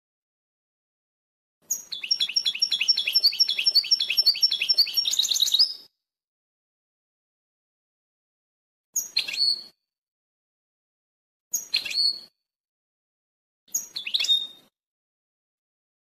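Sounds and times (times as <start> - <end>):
bird song with chirps and trill: 1.6 - 5.9, 9.0 - 9.8, 11.5 - 12.3, 13.7 - 14.8.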